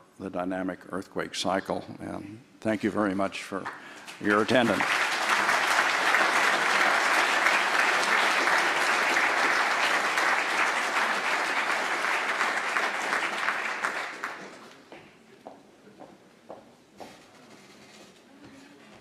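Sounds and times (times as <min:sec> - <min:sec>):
audience applauding: 0:03.6 - 0:14.9.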